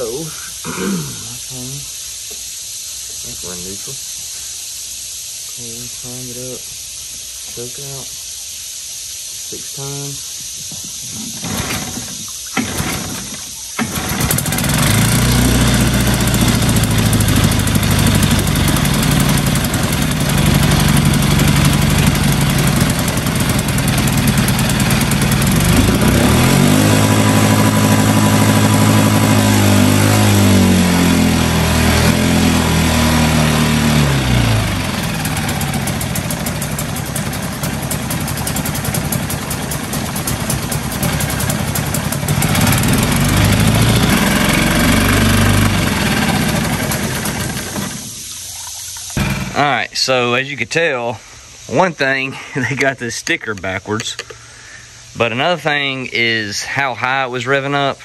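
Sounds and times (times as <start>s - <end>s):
outboard motor revving high: 11.3s - 48.4s, 49.2s - 49.6s
starter cord pull: 11.4s - 15.8s.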